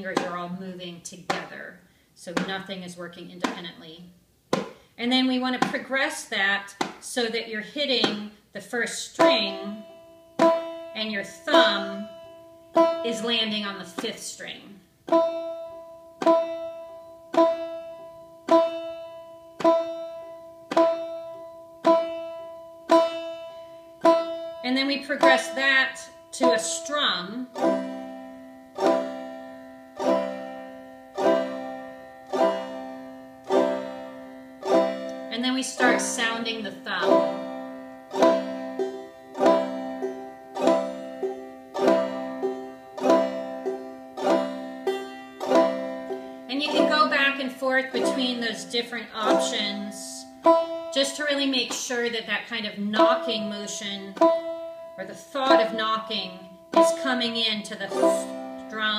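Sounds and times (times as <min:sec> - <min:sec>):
banjo single notes: 0:00.0 - 0:58.9.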